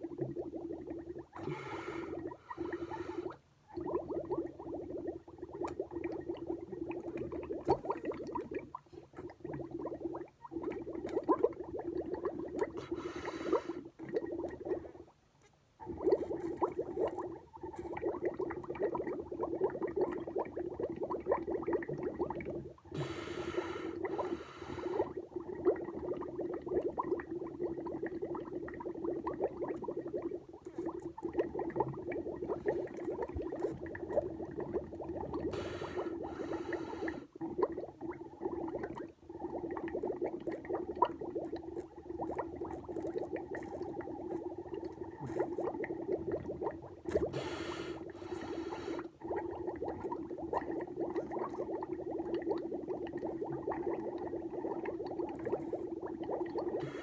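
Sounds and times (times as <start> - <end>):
bubbling milk through straw: 0.0 - 57.0
sharp breath through nose: 12.8 - 13.8, 35.5 - 37.3, 47.3 - 49.1.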